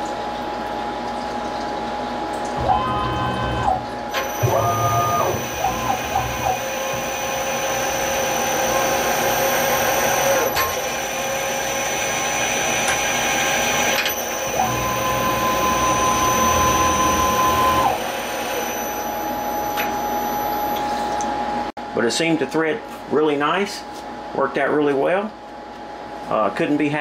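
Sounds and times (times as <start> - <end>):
milling machine spindle whine: 2.6 - 21.2.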